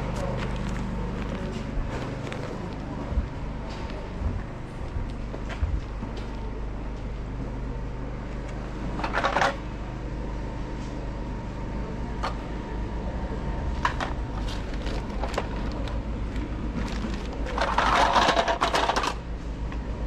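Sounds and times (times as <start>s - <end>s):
steady low hum: 0.0s - 20.0s
plastic bag rustling: 14.4s - 16.0s, 16.7s - 18.2s.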